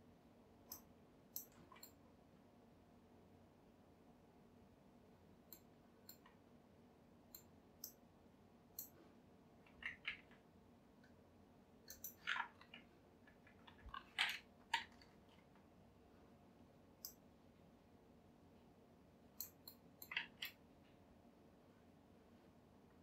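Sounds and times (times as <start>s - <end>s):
mouse and keyboard clicks: 0.7s - 2.0s, 5.5s - 6.4s, 8.8s - 9.0s, 9.7s - 10.4s, 11.9s - 15.1s, 19.4s - 20.6s.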